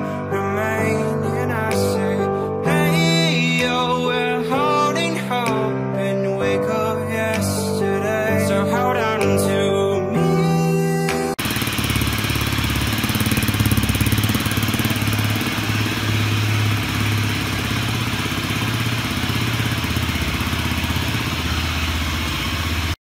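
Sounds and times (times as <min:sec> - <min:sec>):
motorcycle engine idling: 0:11.4 - 0:23.0.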